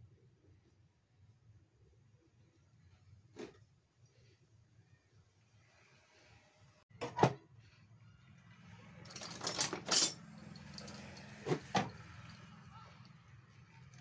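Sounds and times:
metal tools clinking and rattling: 9.0s - 12.5s.

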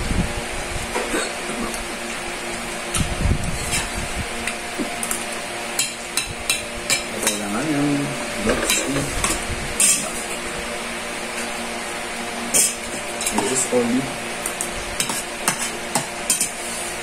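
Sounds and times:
metal spoon scraping on a plate: 8.5s - 10.2s, 12.5s - 13.7s, 15.0s - 16.6s.

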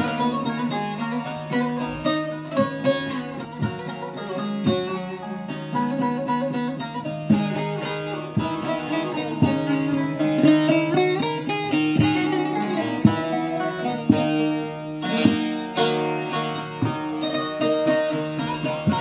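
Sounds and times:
long-necked lutes playing: 0.0s - 19.0s.

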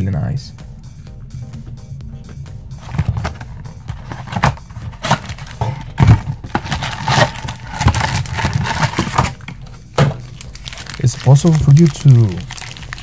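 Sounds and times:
cardboard box knocks and thumps: 2.8s - 9.4s
packs rustling: 2.8s - 13.0s.

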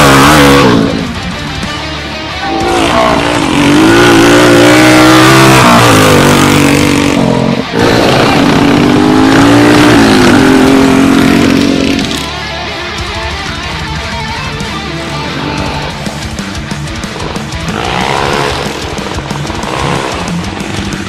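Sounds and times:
motorcycle engines revving: 0.0s - 21.0s.

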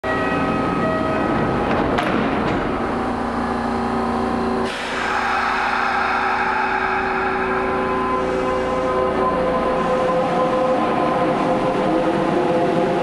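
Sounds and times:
electric train hum and whine: 0.0s - 13.0s
air hissing from brakes: 4.6s - 9.2s.

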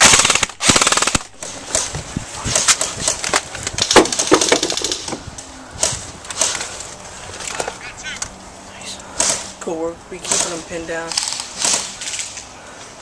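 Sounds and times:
airsoft rifle full-auto burst: 0.0s - 1.3s.

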